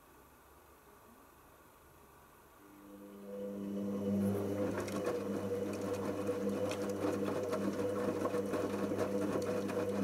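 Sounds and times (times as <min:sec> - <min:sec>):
washing machine motor humming: 0:02.7 - 0:10.0.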